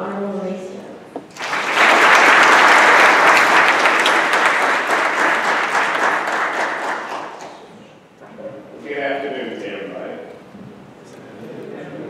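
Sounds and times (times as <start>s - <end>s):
audience applauding: 1.3s - 7.8s.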